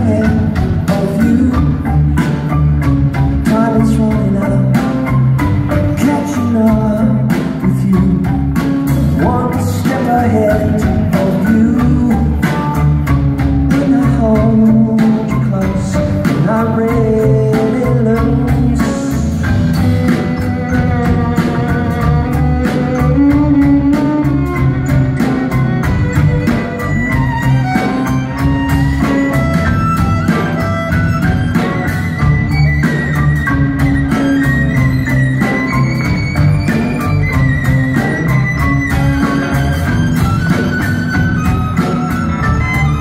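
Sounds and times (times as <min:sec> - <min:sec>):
person singing: 0:00.0 - 0:02.6, 0:03.3 - 0:25.6
drum kit beat: 0:00.0 - 0:43.0
electric guitar: 0:00.0 - 0:43.0
violins: 0:17.9 - 0:43.0.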